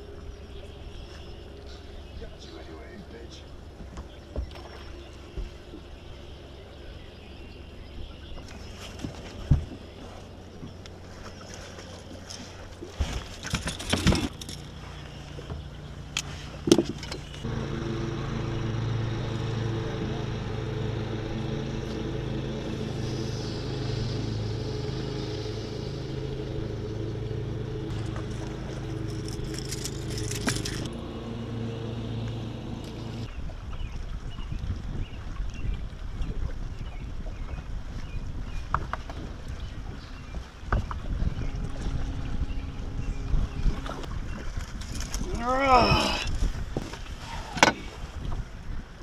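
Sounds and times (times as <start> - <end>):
boat motor running: 0.0 - 48.9
knocks and rattles on boat: 8.3 - 10.0, 12.9 - 14.6, 16.6 - 17.4, 38.3 - 45.4.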